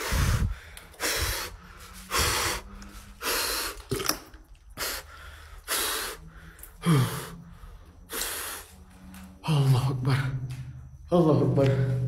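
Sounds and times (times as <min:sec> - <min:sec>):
man breathing hard: 0:00.0 - 0:03.9, 0:04.7 - 0:08.8.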